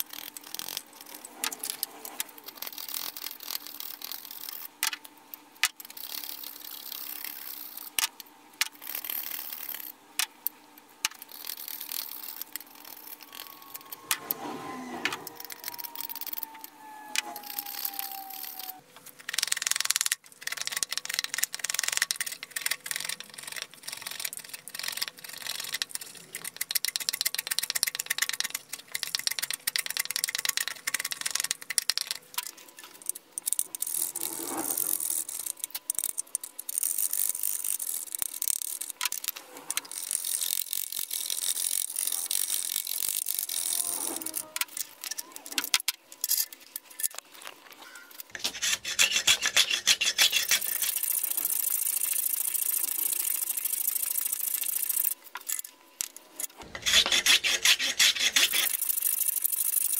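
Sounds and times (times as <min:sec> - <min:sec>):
file rasping on steel: 0:48.4 - 0:51.0, 0:56.6 - 0:58.8.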